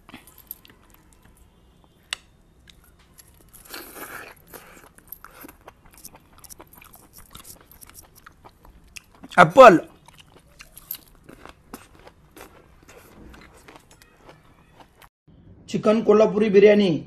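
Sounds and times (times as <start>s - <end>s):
person chewing chicken: 2.7s - 15.1s.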